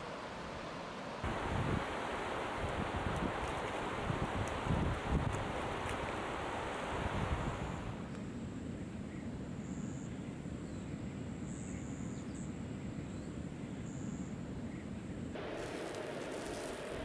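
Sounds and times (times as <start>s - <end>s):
low wind rumble: 1.2s - 17.0s
broad hiss: 15.4s - 17.0s.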